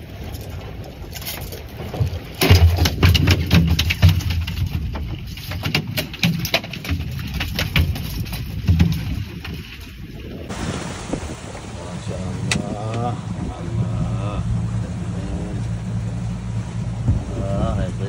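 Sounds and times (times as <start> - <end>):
fish thrashing on boat deck: 0.0 - 13.7.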